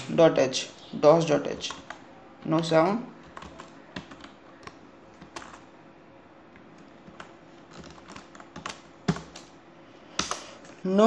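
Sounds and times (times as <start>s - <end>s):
keyboard typing: 1.5s - 5.7s, 6.6s - 9.5s.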